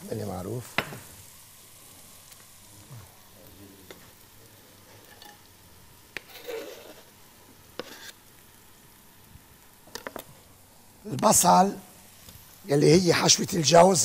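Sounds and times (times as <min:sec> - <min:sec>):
onion sizzling in oil: 0:00.0 - 0:14.0
knife scraping cutting board: 0:06.2 - 0:07.1, 0:07.8 - 0:08.2.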